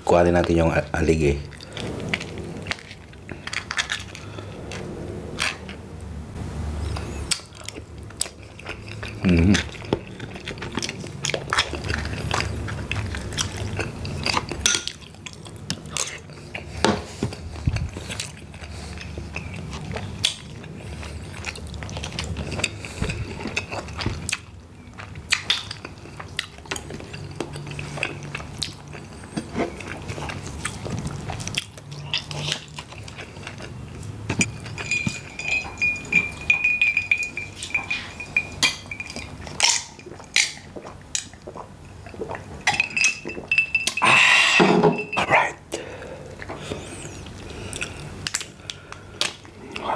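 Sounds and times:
chewing: 6.9 - 44.0, 45.7 - 49.9
dishes clinking: 34.3 - 40.6, 42.6 - 45.3
glass set down: 44.6 - 45.2.

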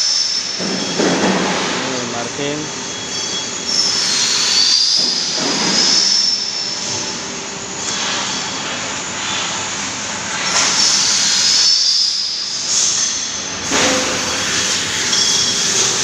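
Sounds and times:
factory machinery running: 0.0 - 16.0
high-pitched metallic squeal: 1.8 - 9.1, 10.5 - 16.0.

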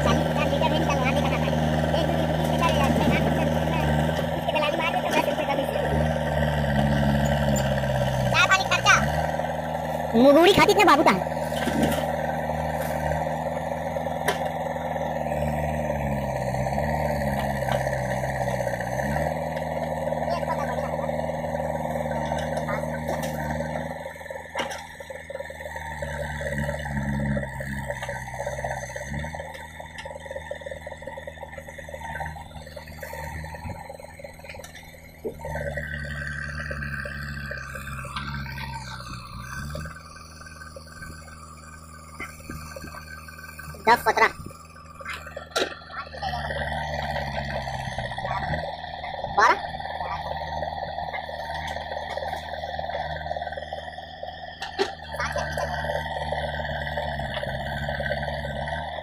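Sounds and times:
diesel engine under load: 0.0 - 59.0
hydraulic whine: 0.0 - 59.0.

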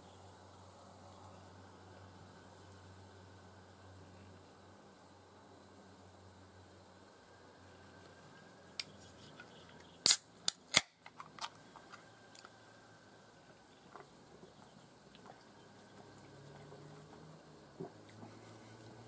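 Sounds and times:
can pull tab cracking open: 10.0 - 11.6.

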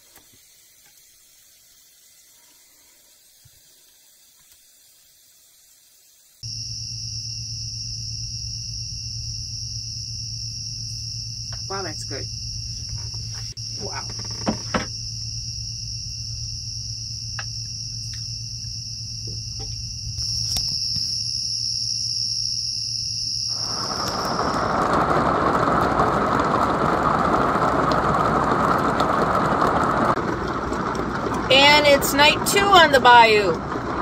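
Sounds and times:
night insects trilling: 0.0 - 34.0
low hum: 6.4 - 34.0
heavy rain: 23.5 - 34.0.

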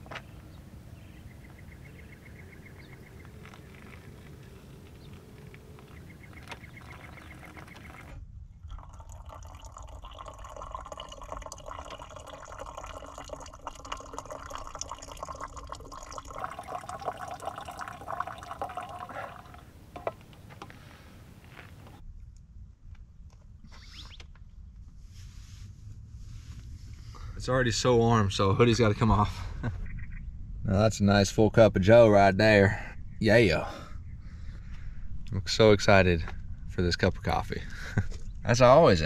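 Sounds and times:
hot water pouring: 3.3 - 8.1, 8.7 - 20.2
coffee dripping into mug: 3.3 - 20.1.

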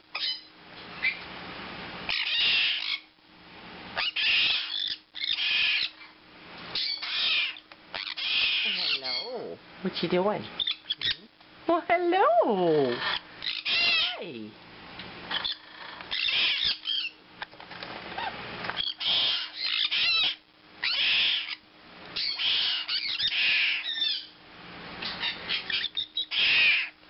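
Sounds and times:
parrot chicks squawking: 0.0 - 1.2, 2.1 - 3.2, 4.0 - 9.6, 10.6 - 11.3, 12.8 - 14.4, 15.3 - 17.2, 18.2 - 24.4, 25.0 - 27.0.

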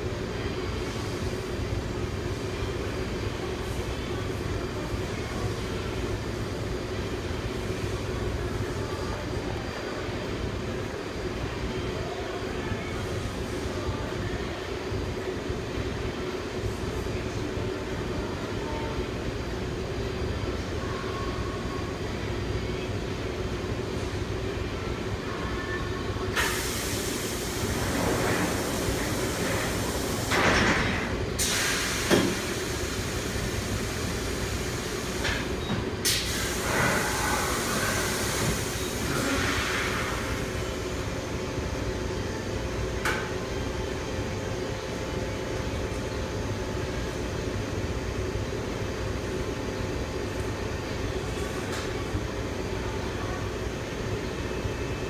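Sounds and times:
machine hum and air rush: 0.0 - 55.0
loud hiss of air: 26.3 - 30.5, 31.3 - 40.9
sharp click with hiss: 26.4 - 26.6, 31.4 - 32.5, 35.2 - 36.5.

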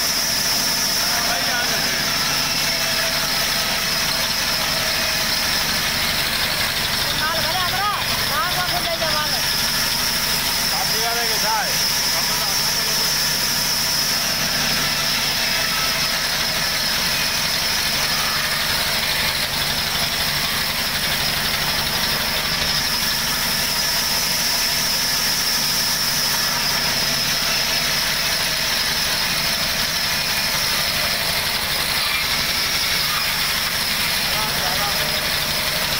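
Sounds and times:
band saw running: 0.0 - 35.9
band saw whining: 0.0 - 35.9.

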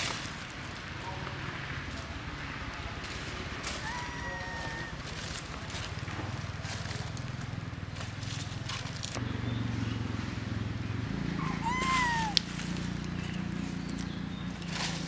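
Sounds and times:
macaque coo call: 3.8 - 5.0, 11.4 - 12.5.

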